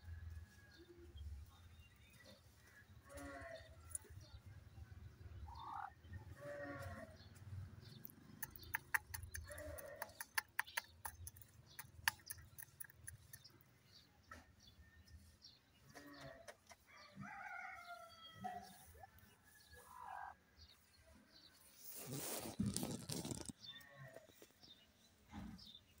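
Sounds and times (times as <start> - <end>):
faint bleating calls: 3.0 - 3.8, 5.6 - 7.2, 9.4 - 10.2
sharp clicks and ticks: 7.9 - 13.6.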